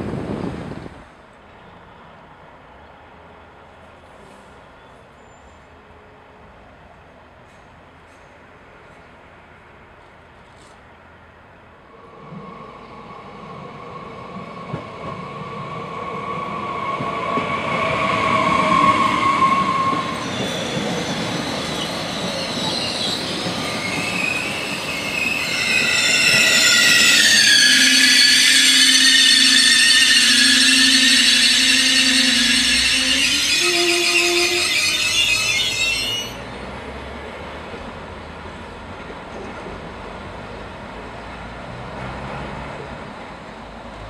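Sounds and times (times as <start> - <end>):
train brakes and wheels squealing: 3.9 - 6.2, 12.0 - 36.6
train running noise: 11.9 - 44.0.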